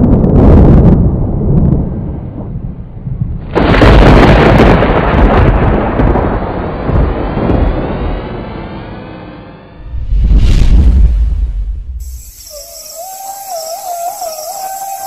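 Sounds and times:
thunder clap: 0.0s - 8.4s
thunder rumble: 0.0s - 15.0s.

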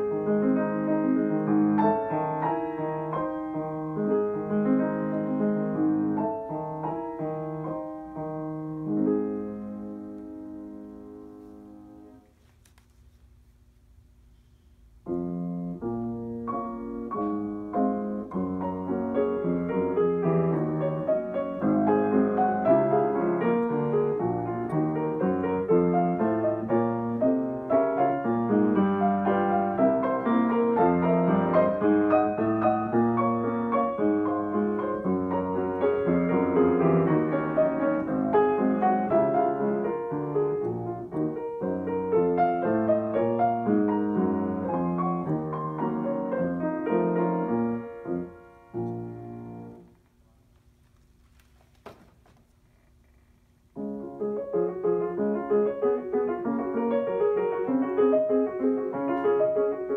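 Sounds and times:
grand piano playing: 0.0s - 12.2s, 15.0s - 50.0s, 53.7s - 59.9s.

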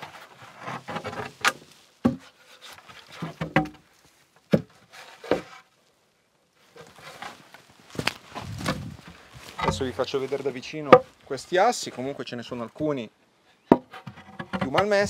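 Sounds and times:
wood scraping: 0.0s - 6.0s, 6.6s - 12.9s, 13.7s - 15.0s
wooden boards knocking: 3.2s - 3.8s, 10.9s - 11.2s, 13.7s - 15.0s.

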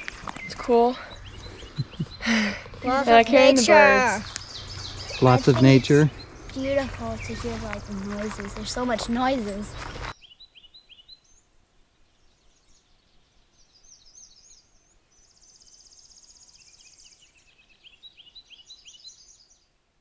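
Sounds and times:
rapid dry bird trill: 0.0s - 11.1s
songbirds singing: 0.0s - 19.7s.

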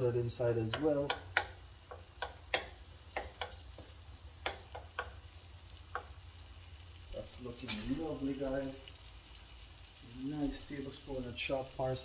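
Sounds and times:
wooden spoon stirring: 0.0s - 6.2s
butter sizzling in a pan: 0.0s - 12.0s.

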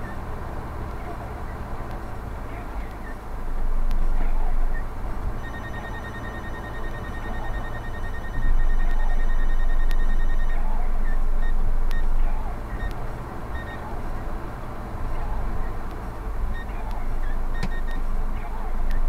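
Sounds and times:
rapid electronic beeping: 4.6s - 13.9s, 16.5s - 18.1s.

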